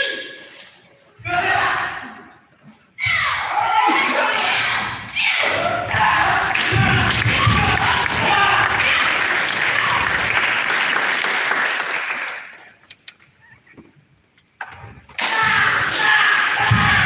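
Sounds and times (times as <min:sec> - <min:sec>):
audience cheering and shouting: 0:03.0 - 0:10.4, 0:15.2 - 0:17.0.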